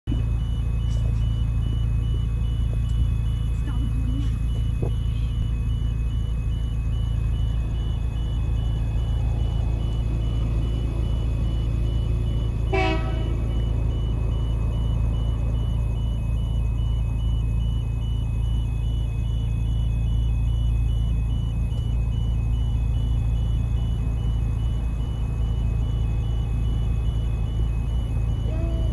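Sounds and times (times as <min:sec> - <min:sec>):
low rumble: 0:00.0 - 0:16.9
train horn toot: 0:12.7 - 0:13.4.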